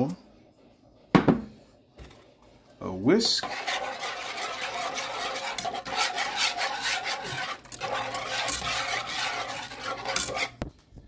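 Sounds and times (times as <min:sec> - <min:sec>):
whisk scraping in a pan: 0:03.1 - 0:10.6.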